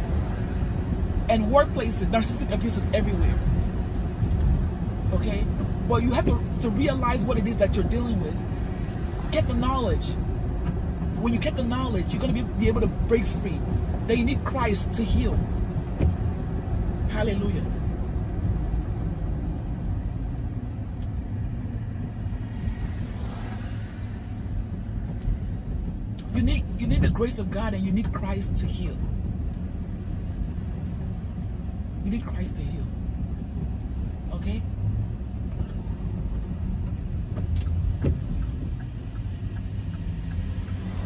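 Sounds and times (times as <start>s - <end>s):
vehicle passing alongside: 0.0s - 1.3s, 7.8s - 14.1s, 15.2s - 26.1s, 34.9s - 41.0s
vehicle cabin road rumble: 0.0s - 41.0s.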